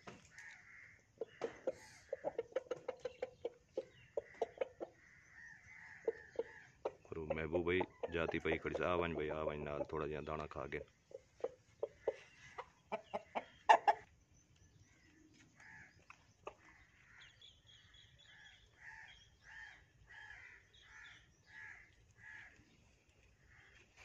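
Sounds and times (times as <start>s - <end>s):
rooster clucking softly: 1.2s - 5.1s, 5.8s - 14.1s.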